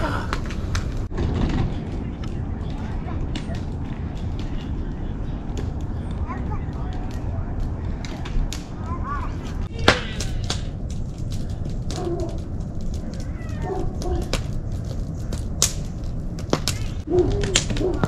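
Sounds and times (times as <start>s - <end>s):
campfire crackling and popping: 0.0s - 18.0s
low fire rumble: 0.0s - 18.0s.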